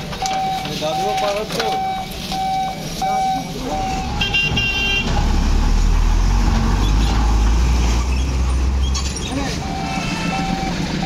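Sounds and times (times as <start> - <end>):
truck diesel engine rumbling: 0.0 - 11.0
vehicle horn toot: 4.2 - 5.1, 9.6 - 10.7.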